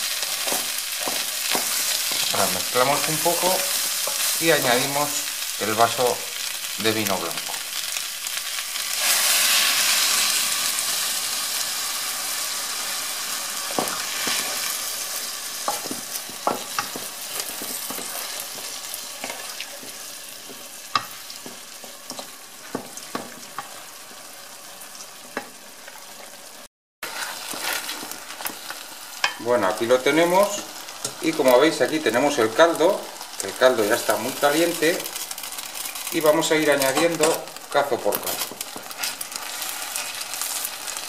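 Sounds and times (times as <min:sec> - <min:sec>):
wooden spoon scraping a pan: 0:00.0 - 0:05.0, 0:13.7 - 0:24.0, 0:27.0 - 0:29.4, 0:38.1 - 0:40.8
wine sizzling in a hot pan: 0:00.0 - 0:41.0.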